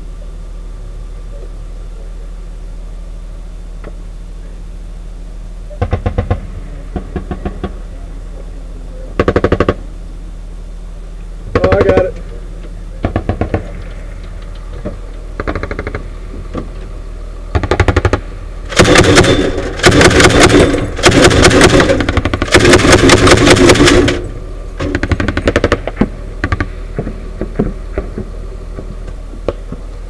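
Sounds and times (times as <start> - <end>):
automatic gunfire bursts: 17.6 - 24.2, 24.9 - 26.7.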